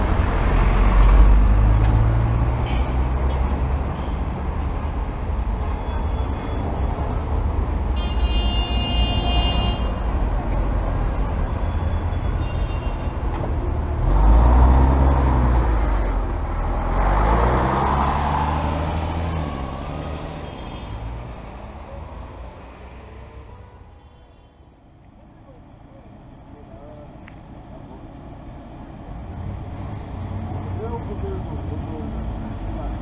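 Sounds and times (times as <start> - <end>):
diesel bus engine revving: 0.0 - 5.3, 13.2 - 23.5
vehicle horn: 7.9 - 10.1, 11.6 - 13.2, 23.5 - 24.7.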